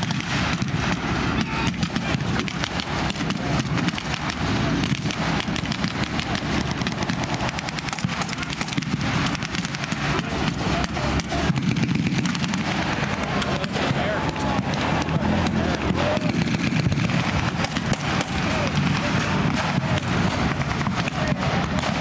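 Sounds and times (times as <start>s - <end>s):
rifle and machine gun fire: 0.0s - 22.0s
vehicle engines running: 0.0s - 22.0s.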